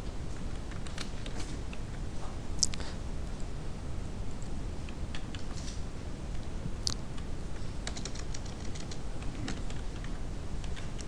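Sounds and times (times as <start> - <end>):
keyboard typing: 0.4 - 1.8, 7.2 - 11.0.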